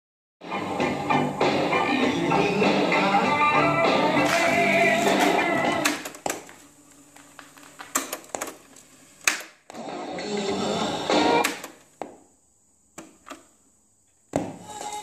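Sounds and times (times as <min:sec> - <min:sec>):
music with singing from boombox: 0:00.4 - 0:06.2, 0:09.8 - 0:11.6.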